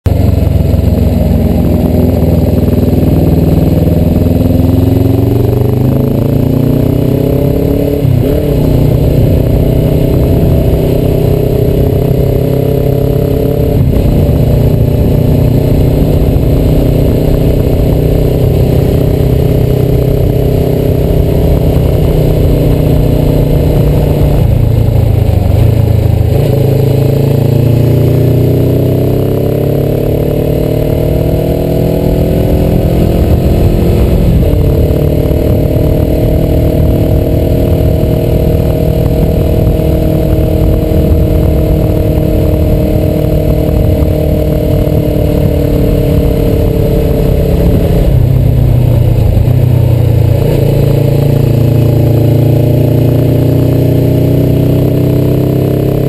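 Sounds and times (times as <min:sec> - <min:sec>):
motorcycle engine: 0:00.0 - 0:56.0
wind rush over microphone: 0:07.4 - 0:27.6, 0:30.4 - 0:52.7.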